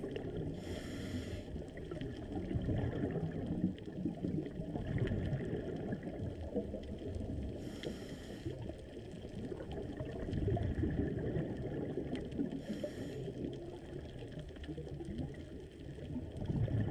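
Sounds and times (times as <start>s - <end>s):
exhaled bubbles gurgling: 0.0s - 16.9s
regulator inhalation hisses: 0.6s - 1.5s, 7.6s - 8.5s, 12.6s - 13.3s.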